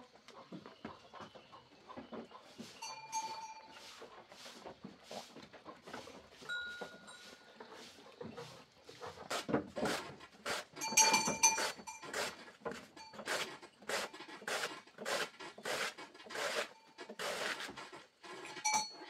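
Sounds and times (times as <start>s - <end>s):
high ringing tone: 2.8s - 3.8s.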